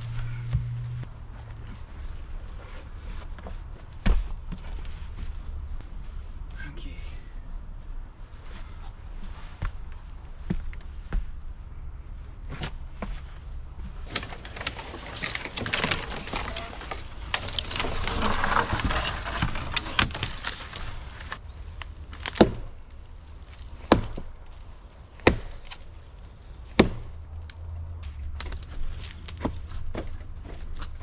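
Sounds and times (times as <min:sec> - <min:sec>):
dry branches crackling and snapping: 0:13.8 - 0:31.0
sharp wood cracks: 0:13.9 - 0:31.0.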